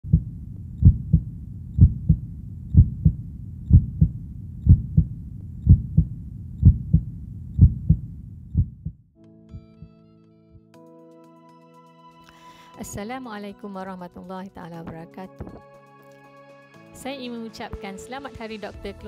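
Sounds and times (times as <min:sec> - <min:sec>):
heartbeat thumps: 0:00.0 - 0:09.0, 0:15.4 - 0:15.6.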